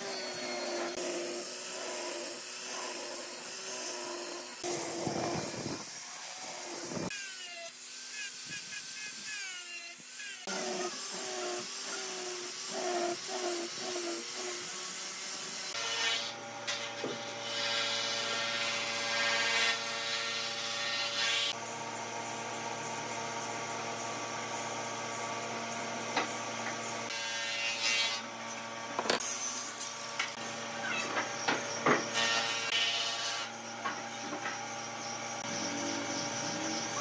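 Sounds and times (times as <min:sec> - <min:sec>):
power tool motor hum: 0:00.0 - 0:37.0
rasping on wood: 0:10.4 - 0:15.7.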